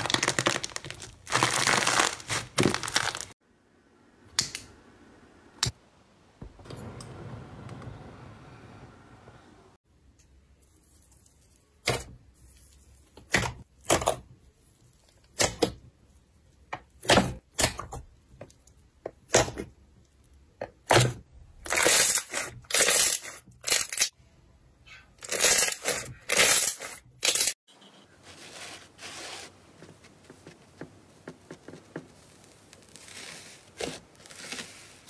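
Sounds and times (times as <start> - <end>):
slime popping and squelching: 0.0 - 3.3
soft rubbing of slime: 28.0 - 35.0.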